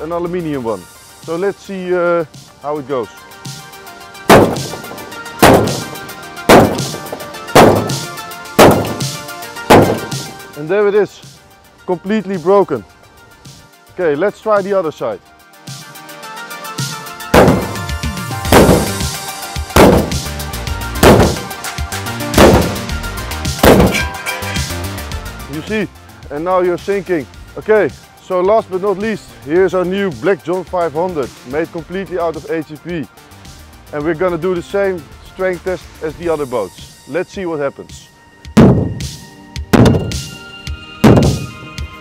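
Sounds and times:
background music: 0.0 - 42.0
hammer striking metal hull: 4.3 - 10.4, 17.4 - 17.9, 18.6 - 19.1, 19.8 - 20.3, 21.0 - 21.6, 22.4 - 22.9, 23.6 - 24.8, 38.6 - 39.1, 39.8 - 40.3, 41.0 - 41.6.

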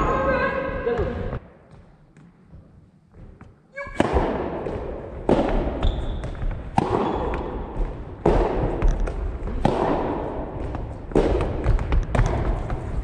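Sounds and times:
ball bouncing on wooden floor: 0.9 - 13.0
rackets hitting ball: 3.9 - 13.0.

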